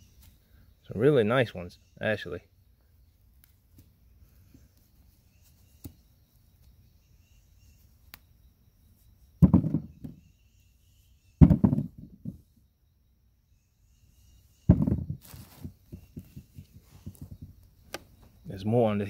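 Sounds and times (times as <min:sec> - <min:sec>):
potatoes dropping with thumps: 0:14.7 - 0:18.2.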